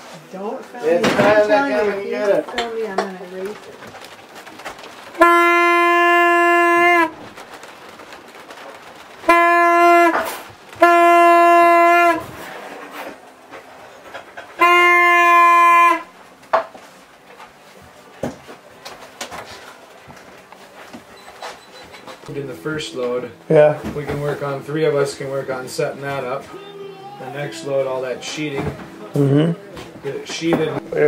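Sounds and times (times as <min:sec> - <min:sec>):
horn blasts: 0:04.9 - 0:07.5, 0:08.9 - 0:16.2, 0:22.3 - 0:31.0.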